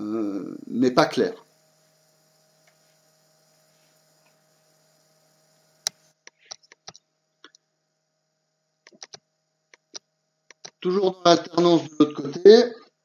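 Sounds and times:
low mains hum: 0.0s - 13.0s
sharp click: 5.8s - 7.0s
short clicks: 5.8s - 7.6s, 8.9s - 10.8s.

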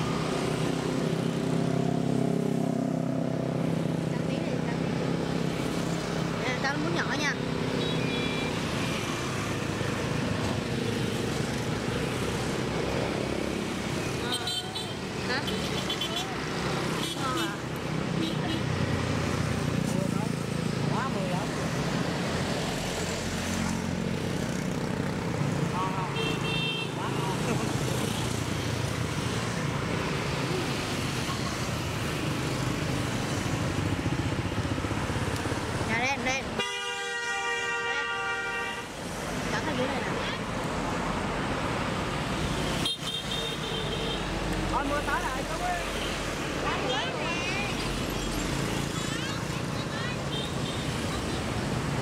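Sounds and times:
motorbike and car engines passing: 0.0s - 36.6s, 38.7s - 52.0s
street traffic noise: 0.0s - 52.0s.

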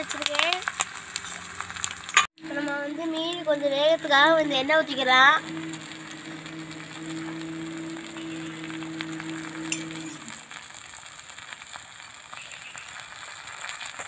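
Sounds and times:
fish sizzling in a pan: 0.0s - 14.0s
low hum: 2.4s - 10.8s.

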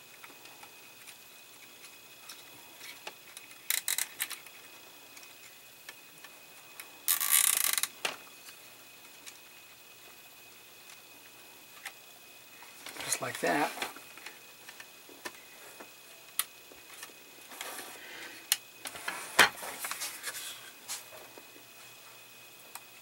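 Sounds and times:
small plastic clicks: 2.3s - 4.5s.

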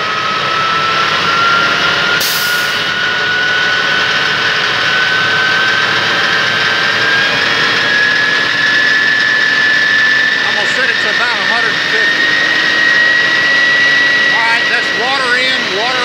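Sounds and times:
diesel engine and fire pump running: 0.0s - 16.0s
rising pump whine: 0.0s - 16.0s
brief hiss: 2.2s - 2.9s.

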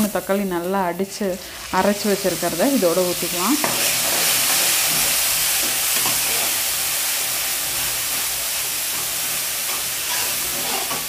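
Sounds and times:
puree sizzling in hot oil: 0.0s - 11.0s.

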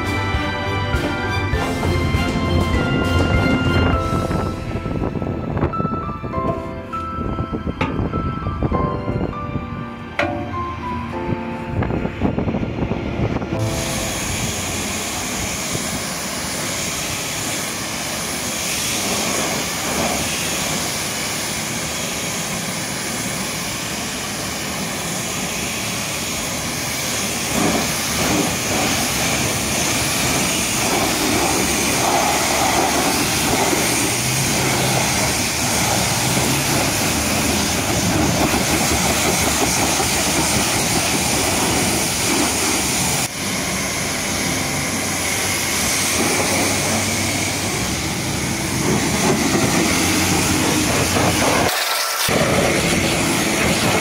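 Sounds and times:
pressure washer spraying water: 13.6s - 54.0s.

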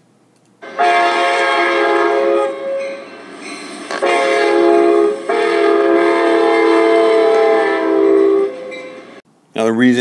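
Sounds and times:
train horn blowing: 0.6s - 3.2s, 3.9s - 9.2s.

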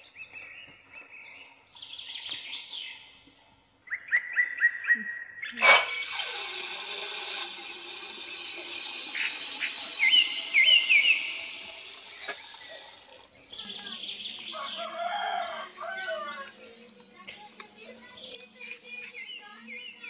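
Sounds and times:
lentils poured into water: 5.6s - 14.8s
bird chirping: 9.2s - 20.0s.

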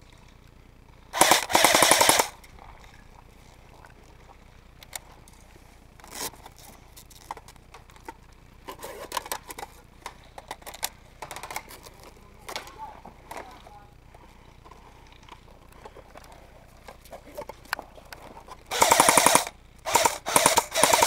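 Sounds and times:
airsoft rifle full-auto burst: 1.1s - 2.4s, 18.7s - 21.0s
faint clicks and knocks: 2.4s - 18.7s.

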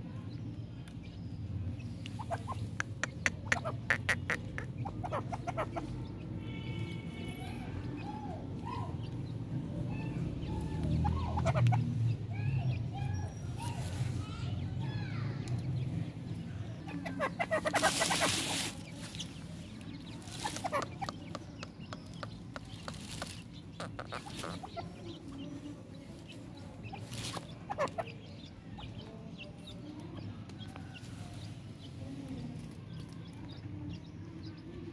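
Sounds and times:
francolin clucking: 2.0s - 6.2s, 16.8s - 25.5s, 26.2s - 31.4s.

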